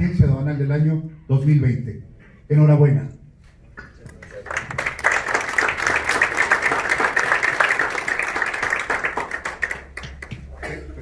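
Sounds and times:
audience applauding: 0:04.1 - 0:10.6.

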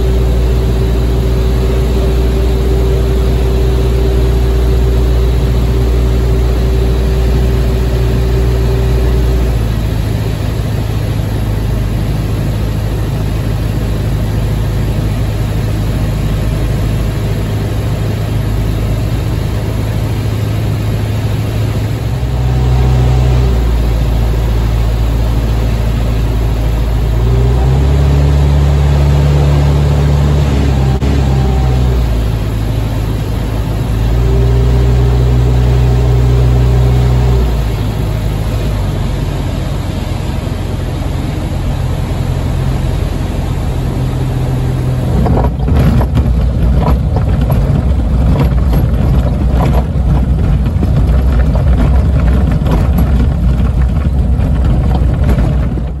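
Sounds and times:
light aircraft engine running: 0:00.0 - 0:56.0
knocks and rattles: 0:45.1 - 0:56.0.

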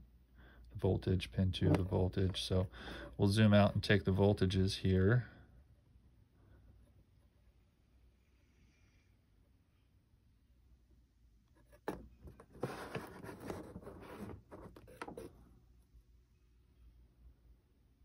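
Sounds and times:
irregular scraping and rubbing: 0:11.6 - 0:15.4.

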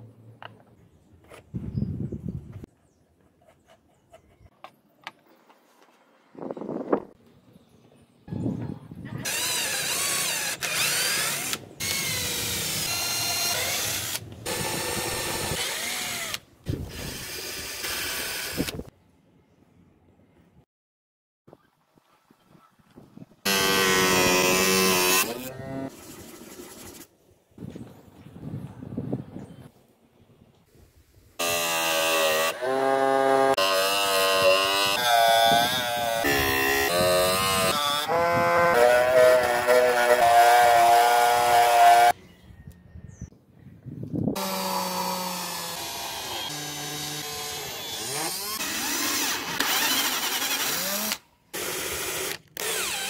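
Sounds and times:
power drill boring plastic pipe: 0:09.3 - 0:18.8, 0:44.4 - 0:53.0
plastic rubbing on sandpaper: 0:25.9 - 0:27.1.

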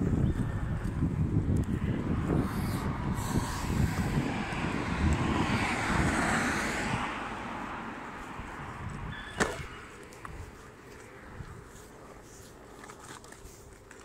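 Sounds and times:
wind buffeting microphone: 0:00.0 - 0:11.9
road noise rushing: 0:00.0 - 0:13.6.

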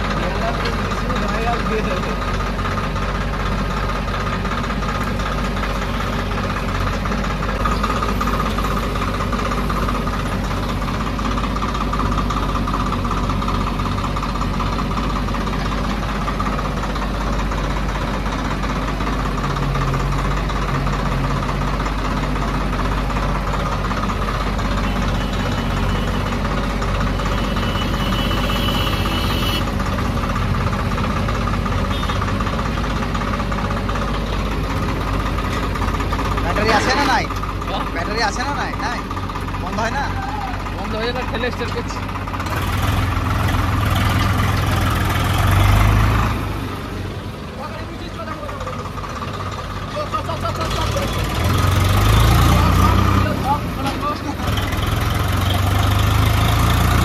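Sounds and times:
backhoe diesel engine clattering: 0:00.0 - 0:57.0
tractor engine idling: 0:00.0 - 0:57.0.

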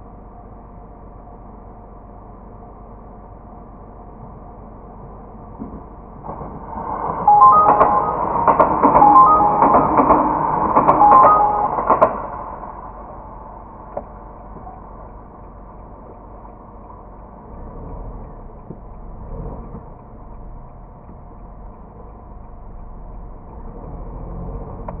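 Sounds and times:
slow traffic: 0:12.7 - 0:25.0.

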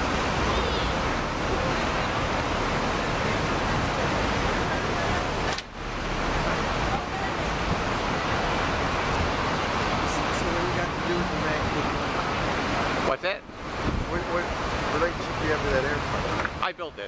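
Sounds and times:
murmur of crowd voices: 0:00.0 - 0:13.1
rushing outdoor noise: 0:00.0 - 0:17.0.

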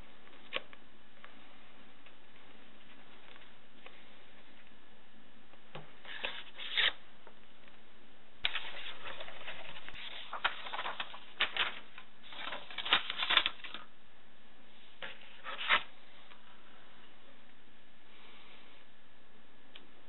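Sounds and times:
paper rustling: 0:06.0 - 0:07.0, 0:08.4 - 0:13.9, 0:15.0 - 0:16.4.

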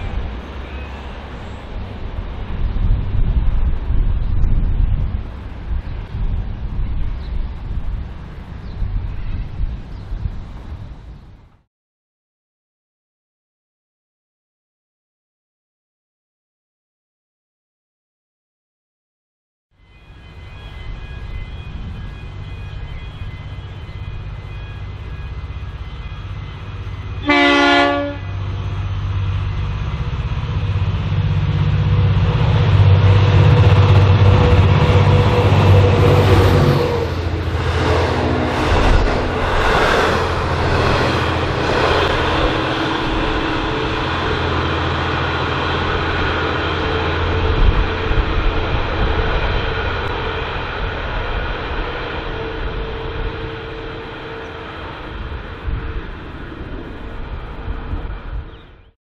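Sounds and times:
train wheel rumble and clatter: 0:00.0 - 0:11.6, 0:20.4 - 0:58.7
diesel engine passing: 0:23.6 - 0:58.4
locomotive horn blast: 0:26.1 - 0:28.7, 0:32.0 - 0:39.5, 0:51.8 - 0:56.1.

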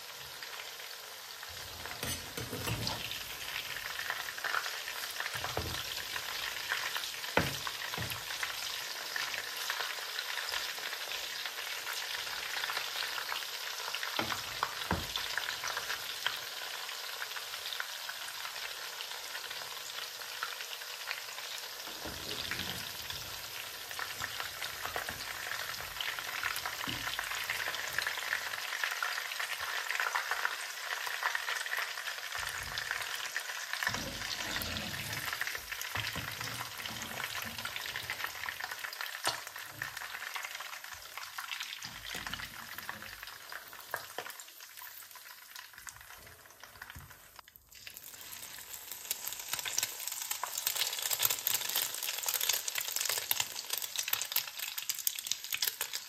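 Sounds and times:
chicken frying in oil: 0:00.0 - 0:56.0
metal spoon scraping a pan: 0:01.5 - 0:03.6, 0:21.9 - 0:28.1, 0:33.8 - 0:38.6.

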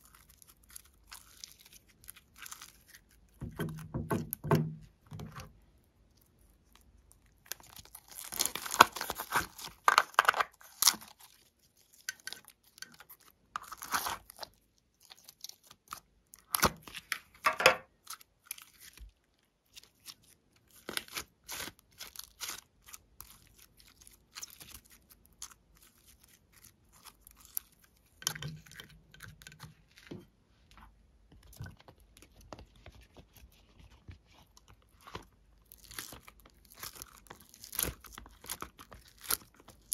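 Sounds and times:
slime crackling and popping: 0:06.7 - 0:19.0, 0:19.7 - 0:29.6, 0:35.0 - 0:39.9.

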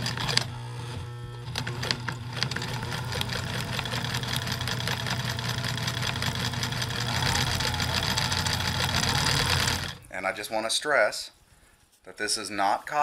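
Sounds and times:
sewing machine motor humming: 0:00.0 - 0:10.1
sewing machine needle ticking: 0:01.5 - 0:10.0.

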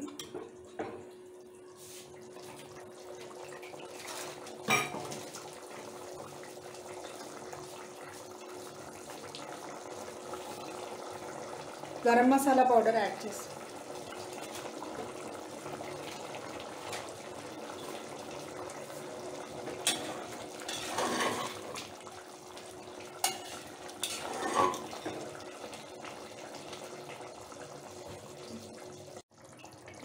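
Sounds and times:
curry simmering: 0:00.2 - 0:30.0
spatula scraping metal pot: 0:20.7 - 0:21.6, 0:23.2 - 0:25.1.

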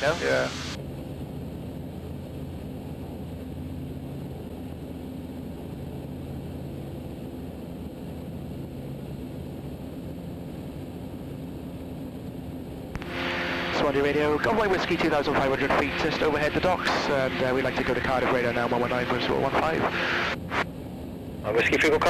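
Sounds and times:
muffled aircraft engine drone: 0:00.0 - 0:22.0.

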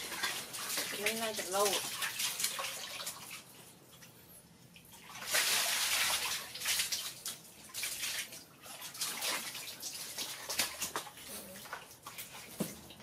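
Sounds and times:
hose water pouring into bucket: 0:00.0 - 0:03.4, 0:05.0 - 0:11.2
monkey splashing in water: 0:05.0 - 0:12.8.

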